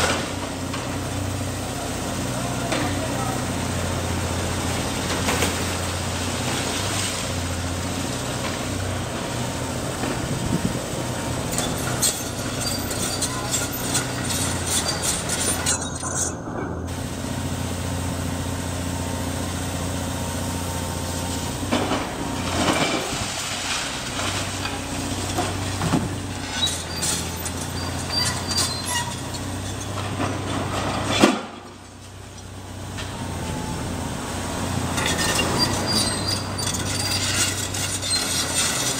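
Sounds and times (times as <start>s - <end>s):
diesel engine under load: 0.0s - 38.9s
debris clattering and clinking: 11.4s - 16.8s, 21.6s - 33.2s, 34.9s - 38.9s.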